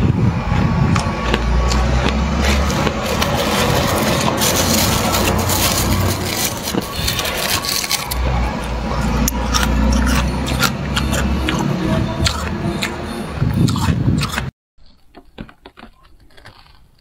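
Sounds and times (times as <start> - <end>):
fingers crunching frost: 0.9 - 12.9, 13.5 - 17.0
plastic bags crinkling: 2.4 - 8.2.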